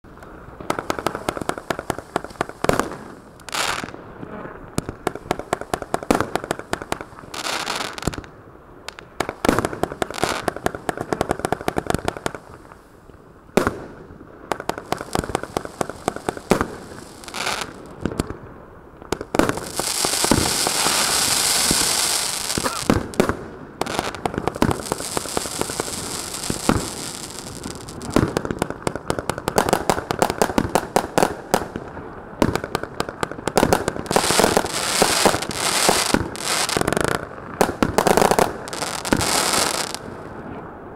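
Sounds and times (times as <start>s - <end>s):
firework pops and bangs: 0.2s - 12.8s, 13.5s - 18.4s, 19.1s - 40.5s
firework crackling: 0.2s - 12.9s, 13.5s - 18.5s, 19.1s - 40.4s
loud firework hissing: 14.8s - 17.9s, 19.4s - 23.2s, 23.8s - 28.4s, 34.0s - 37.2s, 38.0s - 40.1s.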